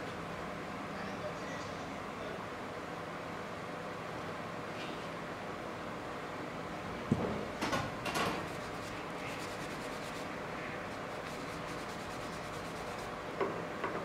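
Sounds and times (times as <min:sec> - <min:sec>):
steady background hiss: 0:00.0 - 0:14.0
wipe rubbing on wood: 0:08.4 - 0:13.2.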